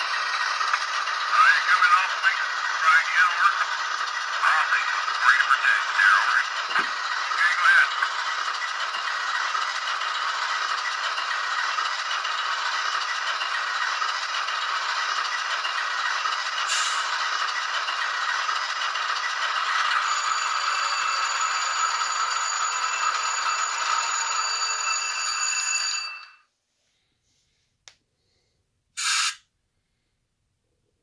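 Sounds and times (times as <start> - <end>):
thin diesel engine sound: 0.0 - 24.9
short hiss: 29.0 - 29.4.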